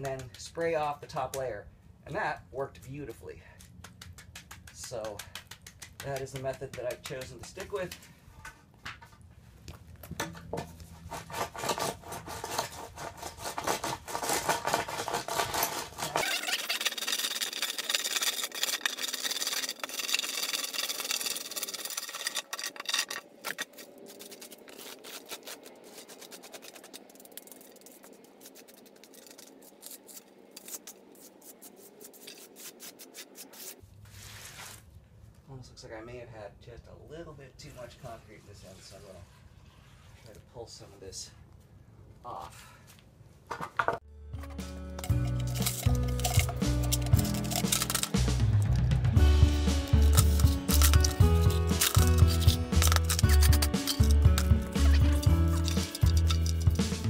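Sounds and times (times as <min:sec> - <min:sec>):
hand float scraping wet concrete: 0:04.4 - 0:08.0, 0:10.8 - 0:34.9, 0:37.7 - 0:40.5, 0:44.5 - 0:57.0.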